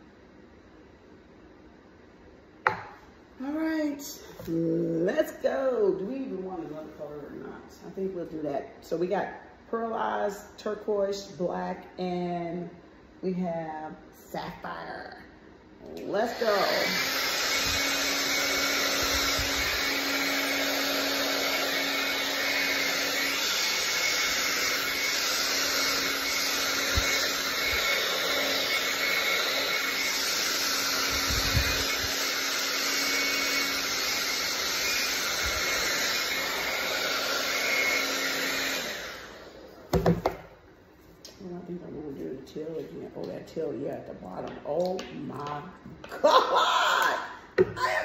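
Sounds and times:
hair dryer running: 2.6s - 8.4s, 15.8s - 40.6s.

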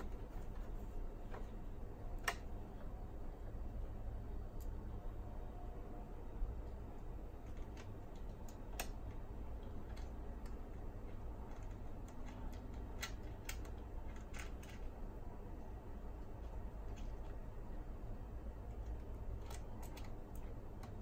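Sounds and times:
steady low hum: 0.0s - 21.0s
light clicks and taps on small parts: 6.6s - 17.8s, 18.4s - 21.0s.

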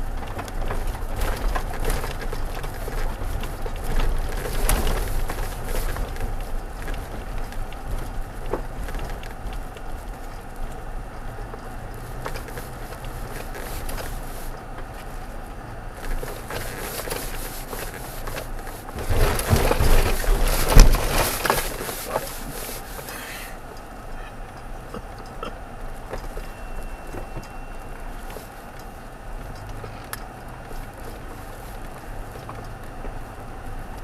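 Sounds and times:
crackling knocks and rattles: 0.0s - 23.9s
pickup truck low rumble: 0.0s - 34.0s.

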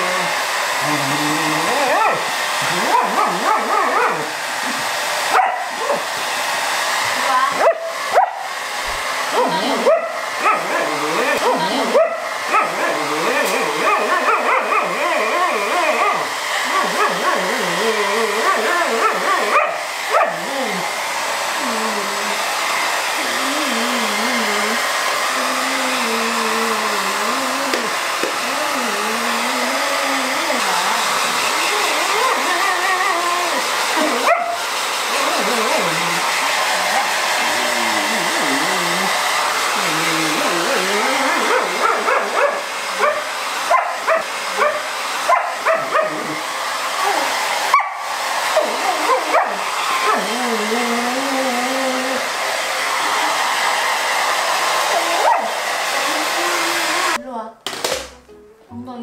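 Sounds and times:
dog grumbling and whining: 0.0s - 6.1s, 9.3s - 20.9s, 21.6s - 22.4s, 23.2s - 36.3s, 36.9s - 39.1s, 39.7s - 42.6s, 43.8s - 47.4s, 48.5s - 52.2s
hair dryer rushing: 0.0s - 58.3s
dog yapping: 1.8s - 4.3s, 5.3s - 6.0s, 7.6s - 8.5s, 9.4s - 17.5s, 18.4s - 20.5s, 34.0s - 34.6s, 41.3s - 46.4s, 47.7s - 50.4s, 54.9s - 55.6s.

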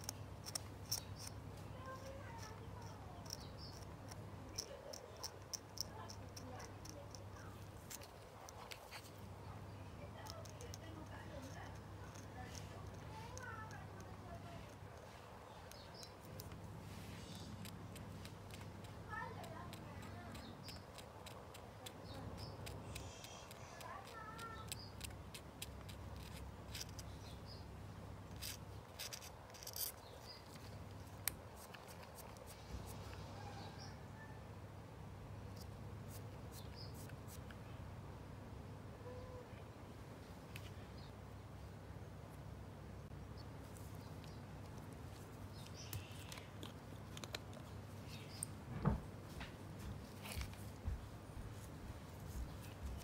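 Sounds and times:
knife blade scraping plastic: 28.3s - 32.6s.

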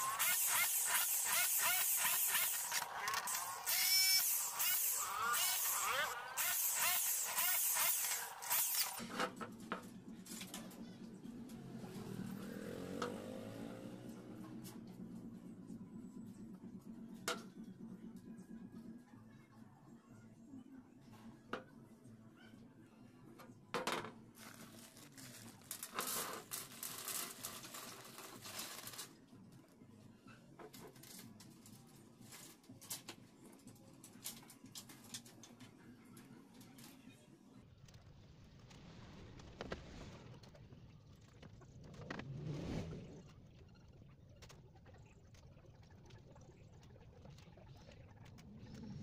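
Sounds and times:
electric drill drilling into metal: 0.0s - 9.0s
low engine-like hum: 9.9s - 23.3s
plastic bag crinkling: 24.4s - 29.0s.

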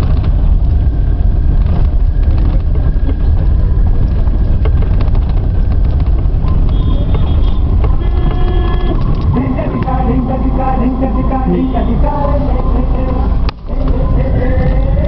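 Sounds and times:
vehicle rumble from on board: 0.0s - 15.0s.

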